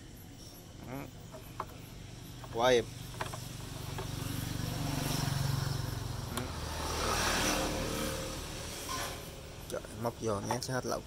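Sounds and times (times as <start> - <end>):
brush cutter engine idling: 1.4 - 4.5.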